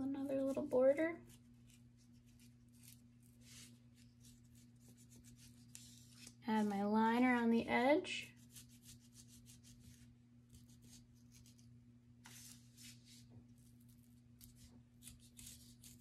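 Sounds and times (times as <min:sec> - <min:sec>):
pencil scratching styrofoam: 0:01.3 - 0:06.4, 0:08.4 - 0:11.6, 0:14.0 - 0:16.0.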